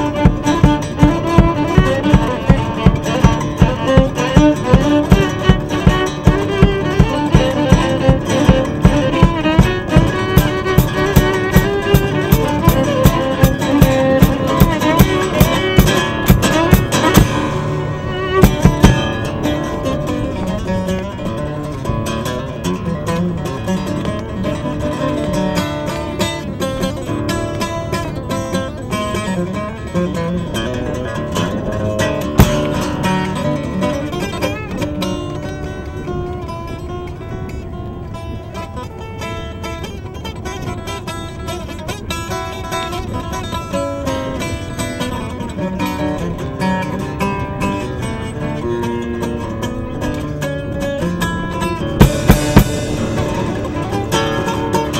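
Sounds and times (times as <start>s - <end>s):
fiddle playing bowed melody: 0.0s - 37.2s, 50.6s - 54.9s
strummed acoustic guitar: 0.0s - 54.9s.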